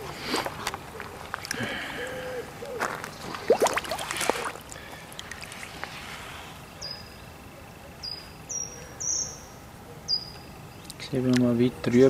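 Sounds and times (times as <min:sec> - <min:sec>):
water splashing: 0:03.2 - 0:06.0
water lapping: 0:03.2 - 0:06.4
bubbly pops: 0:03.3 - 0:04.7.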